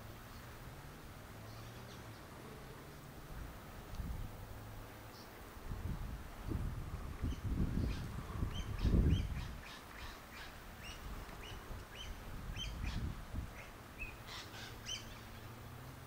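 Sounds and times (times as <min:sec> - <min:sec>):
wind rumble on microphone: 0:03.1 - 0:16.0
bird chirping calls: 0:07.2 - 0:15.8.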